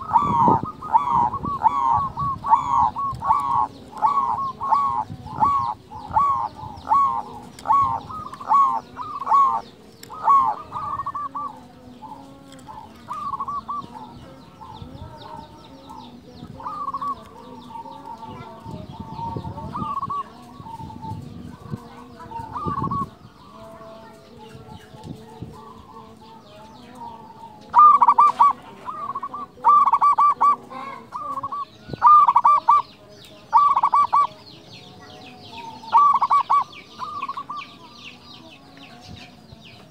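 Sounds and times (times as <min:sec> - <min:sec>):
dove cooing: 0:00.0 - 0:39.0.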